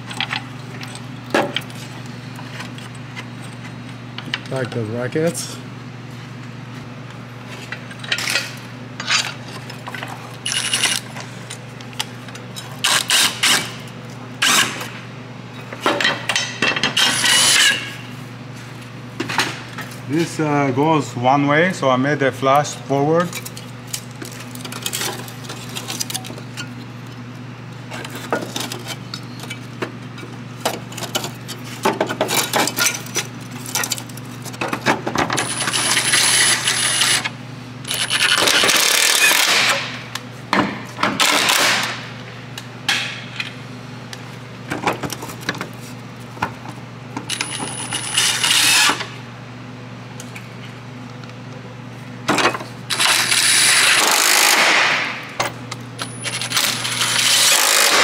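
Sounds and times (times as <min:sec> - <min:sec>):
impact wrench running: 0:10.4 - 0:11.1, 0:12.8 - 0:13.8, 0:17.0 - 0:17.9, 0:35.4 - 0:40.0, 0:47.3 - 0:49.1, 0:52.9 - 0:58.0.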